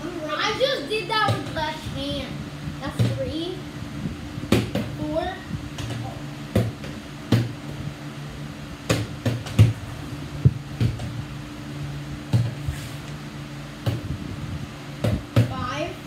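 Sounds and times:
low hum: 0:00.0 - 0:16.0.

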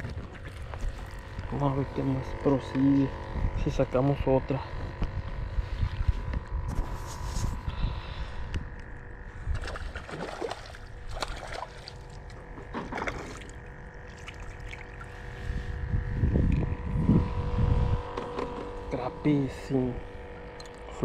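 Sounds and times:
wind buffeting microphone: 0:00.0 - 0:10.0, 0:15.0 - 0:19.0
faint steady hum: 0:00.0 - 0:21.0
clothing rubbing on microphone: 0:06.1 - 0:07.7.

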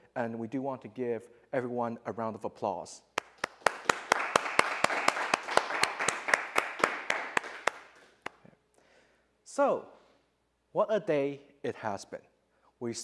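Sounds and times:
sharp close hand clapping: 0:03.2 - 0:08.4
audience applause: 0:03.4 - 0:08.3.

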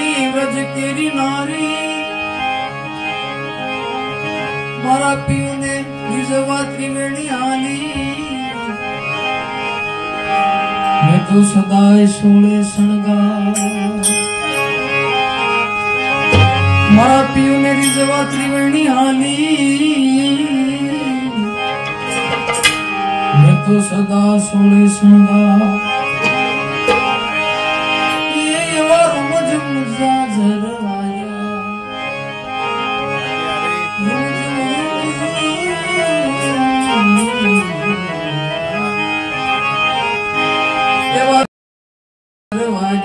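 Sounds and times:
harmonium chords: 0:00.0 - 0:41.5, 0:42.5 - 0:43.0
man singing: 0:04.8 - 0:08.8, 0:11.0 - 0:14.2, 0:16.8 - 0:21.7, 0:23.3 - 0:26.4, 0:28.2 - 0:31.7, 0:33.3 - 0:39.0.

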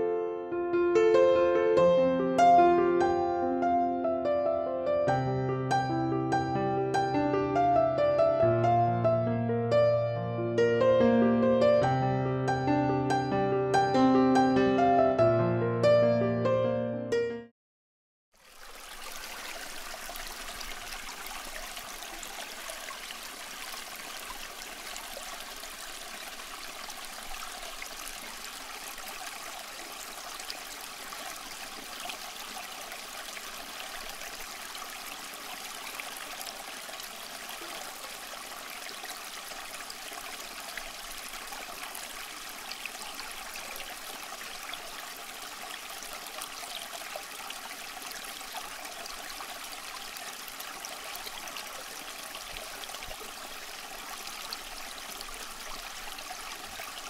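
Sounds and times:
water trickling and splashing: 0:18.3 - 0:57.0.

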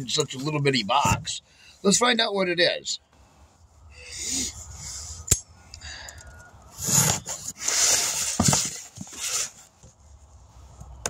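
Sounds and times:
handling rustling and scraping: 0:06.1 - 0:11.0.

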